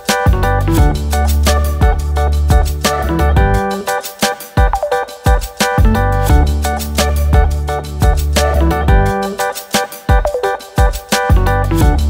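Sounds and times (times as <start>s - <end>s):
held bass line: 0.3s - 3.8s, 5.8s - 9.4s, 11.3s - 12.0s.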